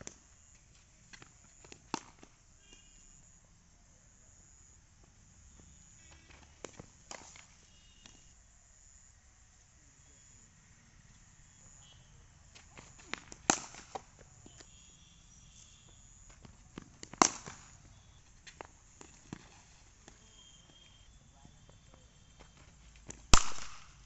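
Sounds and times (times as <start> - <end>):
cricket bat striking ball: 1.9 - 2.9, 6.3 - 8.2, 13.0 - 14.7, 16.4 - 19.5, 23.1 - 24.0.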